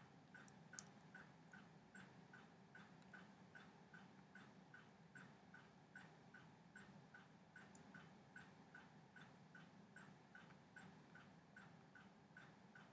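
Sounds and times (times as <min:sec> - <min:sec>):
soft even ticking: 0:00.3 - 0:12.9.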